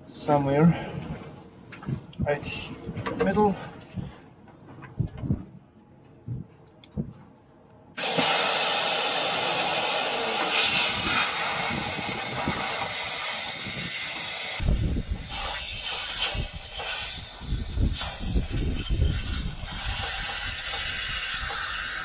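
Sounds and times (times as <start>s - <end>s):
low rumbling: 0.9s - 7.6s
compressed air hissing: 8.0s - 22.0s.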